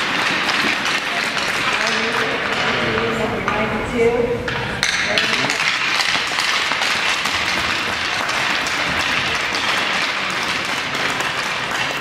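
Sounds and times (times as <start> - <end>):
crowd applauding: 0.0 - 2.5, 5.4 - 12.0.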